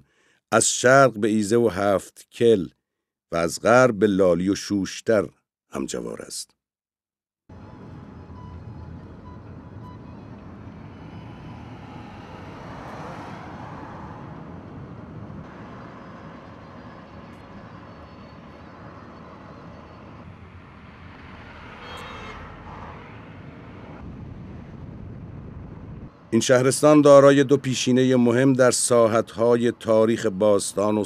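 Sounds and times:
road and engine noise inside car: 0:07.5 - 0:26.3.

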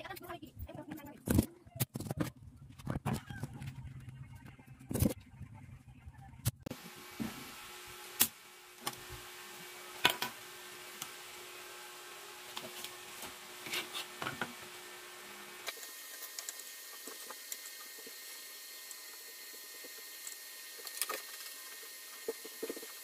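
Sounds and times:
desoldering pump snapping: 0:08.2 - 0:09.1.

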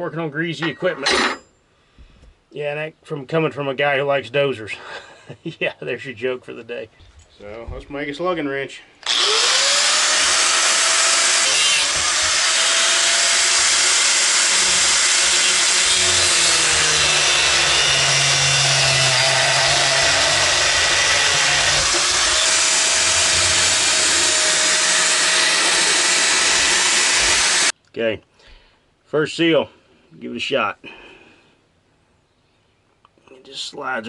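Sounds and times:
angle grinder cutting steel: 0:09.0 - 0:27.7.

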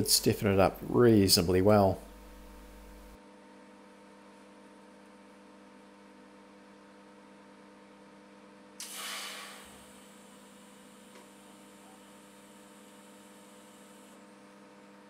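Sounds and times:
faint electrical hum: 0:00.0 - 0:15.0
welding torch hissing: 0:08.8 - 0:14.2.

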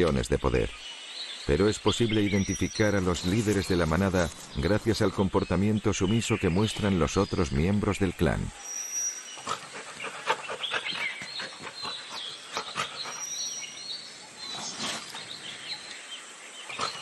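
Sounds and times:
wild dogs squeaking and yelping: 0:08.4 - 0:15.9, 0:16.6 - 0:17.0.

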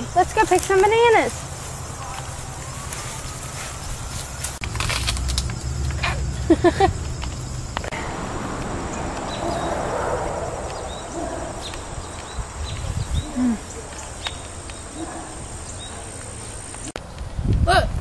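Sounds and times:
insects chirping: 0:00.0 - 0:17.0
faint steady high drone: 0:07.5 - 0:15.8.

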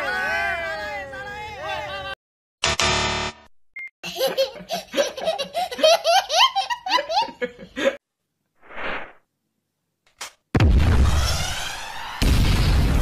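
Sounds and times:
child laughing: 0:04.0 - 0:08.0
brief rush of noise: 0:08.6 - 0:09.2.

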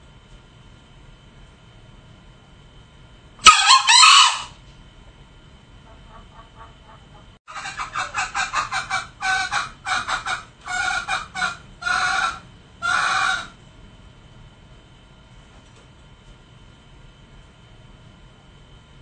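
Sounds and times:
junglefowl calling: 0:03.4 - 0:04.6, 0:05.9 - 0:13.6.

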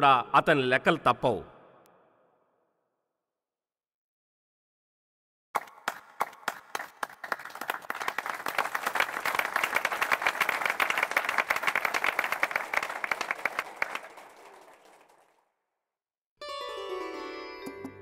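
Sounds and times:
crowd applauding: 0:05.6 - 0:15.5.

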